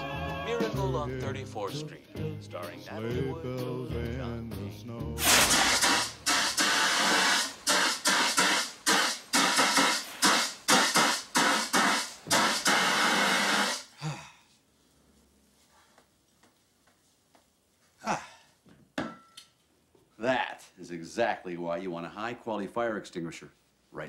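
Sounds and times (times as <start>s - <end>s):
fire extinguisher hissing blasts: 5.2s - 13.9s.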